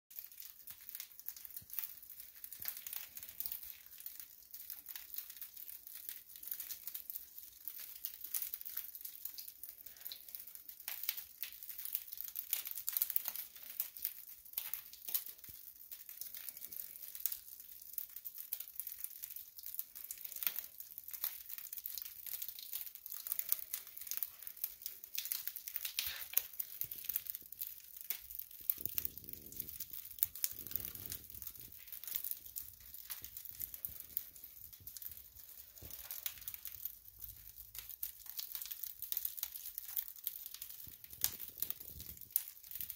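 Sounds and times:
crinkling and crackling: 0.1 - 42.9.

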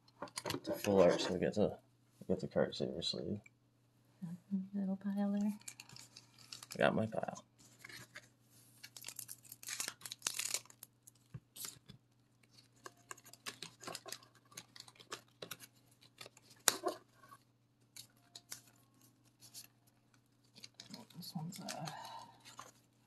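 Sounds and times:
cards rustling and clicking: 7.7 - 22.9.

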